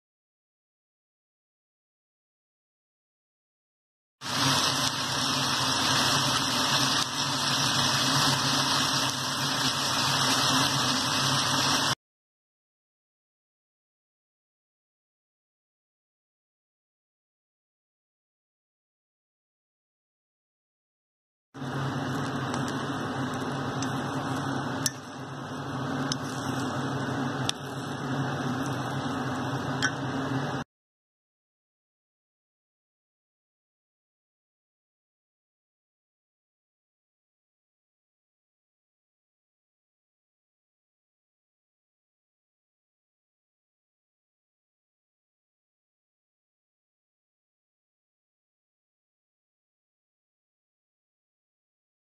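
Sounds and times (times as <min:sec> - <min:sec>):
pot of rice boiling: 0:04.2 - 0:12.0, 0:21.6 - 0:30.6.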